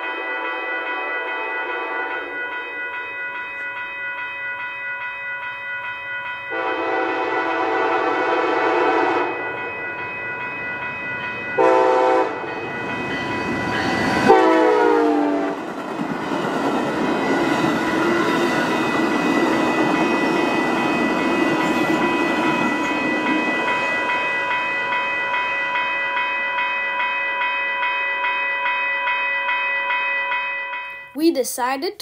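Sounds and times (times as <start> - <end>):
train horn blast: 0.0 - 2.3, 6.5 - 9.4, 11.6 - 12.5, 14.3 - 15.6
crossing bell ringing: 0.0 - 32.0
train cars rolling past: 6.4 - 29.4.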